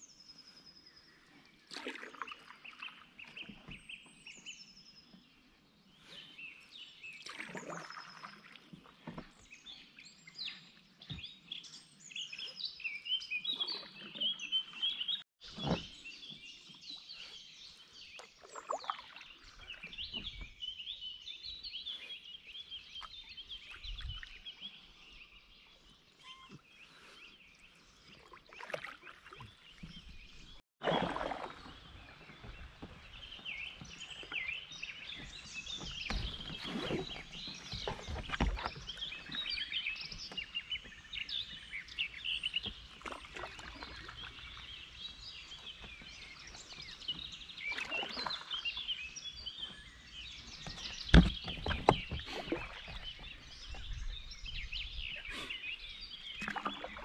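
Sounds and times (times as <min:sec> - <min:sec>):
songbirds singing: 0:00.0 - 0:57.0
paddle strokes splashing: 0:01.7 - 0:04.0, 0:27.9 - 0:49.1, 0:50.7 - 0:53.8, 0:56.3 - 0:57.0.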